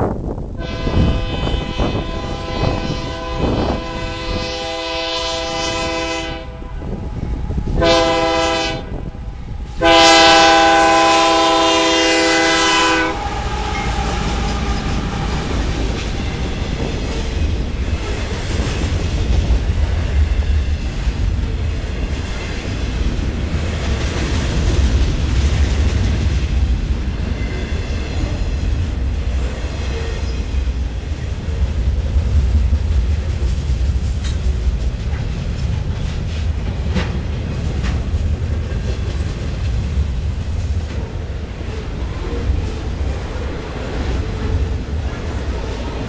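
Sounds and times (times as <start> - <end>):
train rumble and wheel clatter: 0.0 - 46.0
locomotive air horn: 0.6 - 7.1, 7.7 - 9.1, 9.8 - 15.8.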